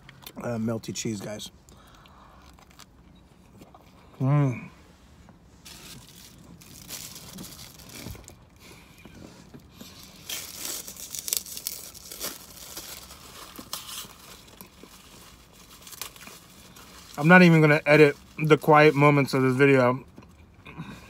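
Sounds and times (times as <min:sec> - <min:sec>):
plastic wrapper crinkling and tearing: 0:02.4 - 0:02.9, 0:05.6 - 0:08.4, 0:09.9 - 0:18.7.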